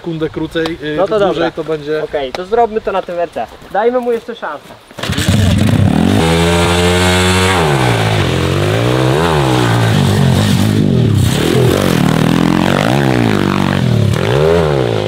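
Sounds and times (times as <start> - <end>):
motorbike engine revving: 5.0 - 15.0.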